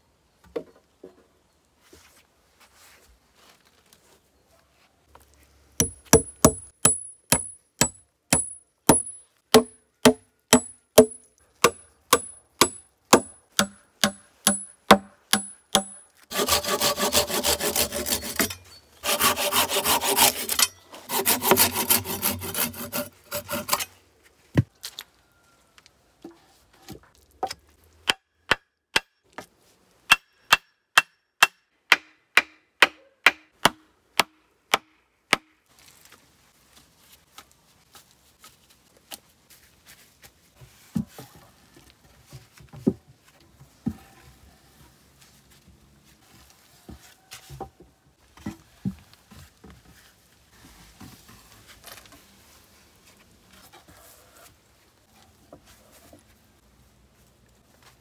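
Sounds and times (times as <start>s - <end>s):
hand saw cutting wood: 15.3s - 23.9s.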